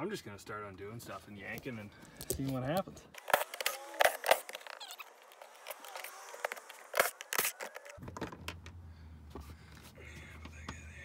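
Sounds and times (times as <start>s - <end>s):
impact driver whirring: 3.2s - 8.0s.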